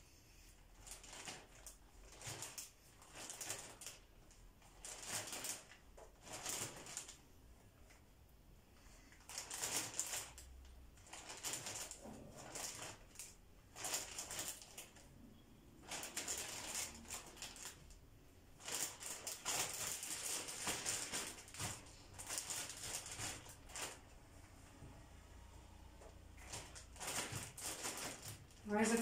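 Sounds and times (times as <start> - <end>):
plastic bag crinkling: 0.8 - 7.2, 9.2 - 15.0, 15.8 - 18.0, 18.6 - 24.2, 26.3 - 29.0.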